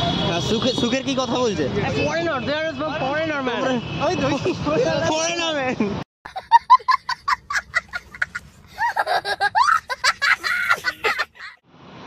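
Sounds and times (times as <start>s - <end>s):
young child laughing: 6.3s - 11.6s.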